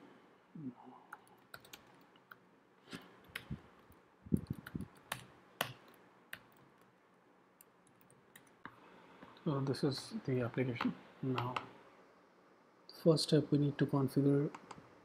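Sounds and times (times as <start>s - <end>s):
computer keyboard typing: 1.1s - 2.4s, 3.3s - 6.9s, 7.6s - 8.7s.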